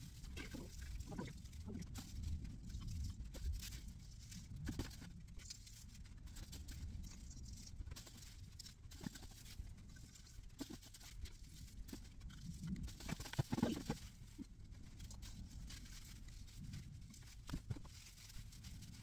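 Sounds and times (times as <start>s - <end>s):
rustling of tree branches: 0.0s - 19.0s.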